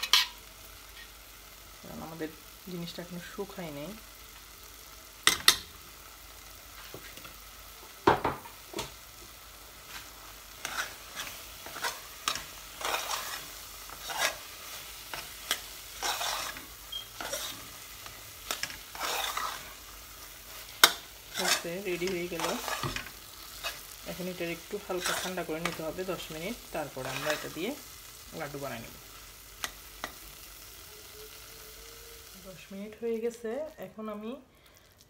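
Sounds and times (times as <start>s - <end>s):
spoon clanking against pan: 0.0s - 0.4s, 5.2s - 5.7s, 20.8s - 23.8s
metal spoon scraping saucepan: 10.6s - 14.5s, 15.1s - 17.7s, 18.5s - 19.7s, 20.8s - 23.8s.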